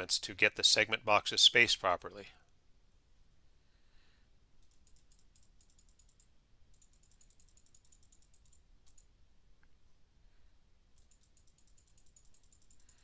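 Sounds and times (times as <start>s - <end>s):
computer mouse clicking: 4.6s - 9.1s, 11.0s - 13.0s.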